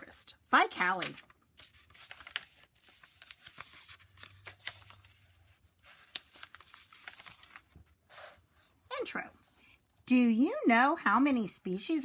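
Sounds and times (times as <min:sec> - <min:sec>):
paper pages rustling: 0:00.6 - 0:08.8.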